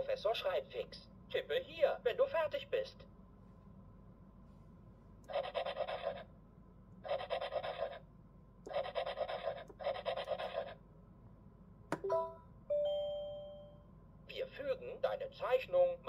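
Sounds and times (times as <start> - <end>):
stylus scratching on screen: 5.3 - 6.3, 7.0 - 8.0, 8.7 - 10.8.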